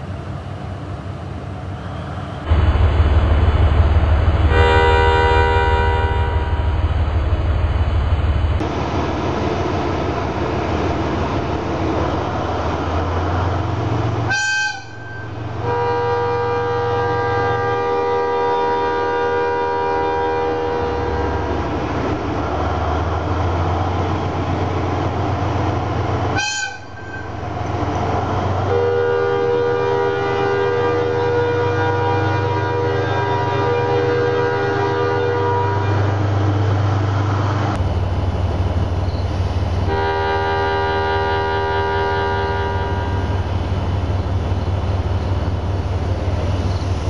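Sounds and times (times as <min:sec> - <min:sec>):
diesel locomotive engine rumble: 0:00.0 - 0:47.0
locomotive horn blasts: 0:04.4 - 0:06.8, 0:14.3 - 0:21.6, 0:26.3 - 0:27.4, 0:28.6 - 0:36.2, 0:39.9 - 0:43.6.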